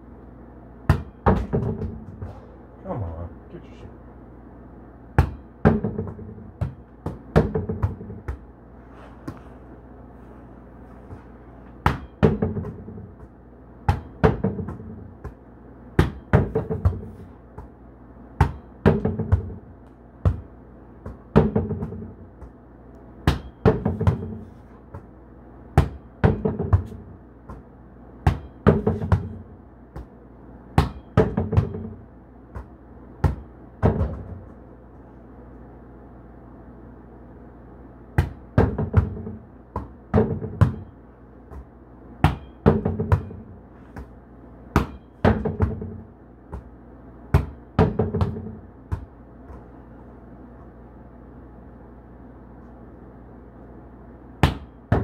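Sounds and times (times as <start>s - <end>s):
hand smacking volleyball: 0.8s - 2.5s, 5.1s - 8.5s, 11.0s - 34.6s, 38.1s - 49.8s, 54.4s - 55.0s
ball thudding off plywood: 0.9s - 2.4s, 11.8s - 15.4s, 38.2s - 40.9s.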